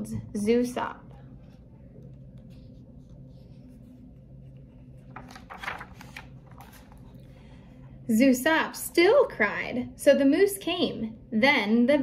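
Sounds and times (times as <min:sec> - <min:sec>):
low steady hum: 0:00.0 - 0:12.0
book page turning: 0:01.3 - 0:07.3.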